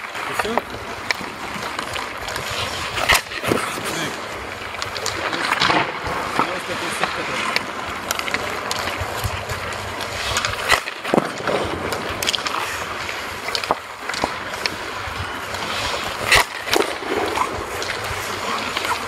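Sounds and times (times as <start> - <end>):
skate blades scraping ice: 0.0 - 19.0
sharp clacks: 4.7 - 14.8.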